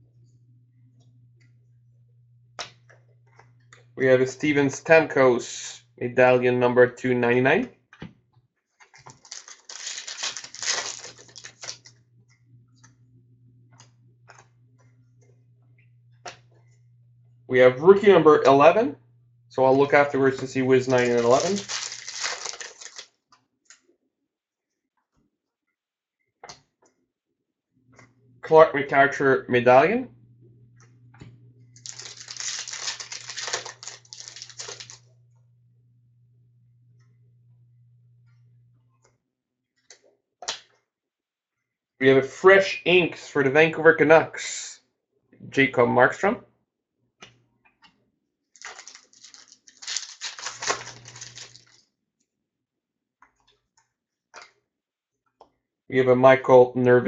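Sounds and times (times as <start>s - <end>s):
faint low hum: 0.0s - 7.7s, 9.3s - 23.0s, 27.9s - 39.1s
card pack wrapper crinkling: 8.8s - 11.9s, 19.7s - 23.1s, 31.8s - 35.0s, 48.6s - 51.8s
cards clicking and tapping: 31.8s - 35.0s.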